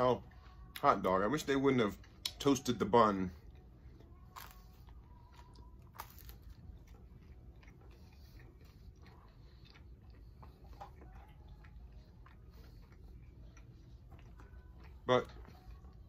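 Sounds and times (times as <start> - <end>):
chewing food: 0.1 - 16.0
crispy bun crunching: 4.3 - 11.0.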